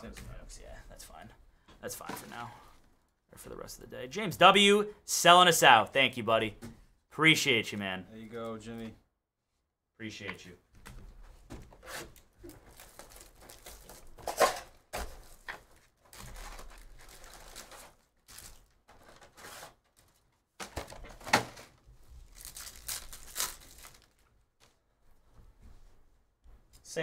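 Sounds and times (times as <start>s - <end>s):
packaging crinkling: 12.6s - 14.4s, 15.7s - 24.3s
packaging ripping: 16.1s - 20.2s, 22.2s - 24.3s.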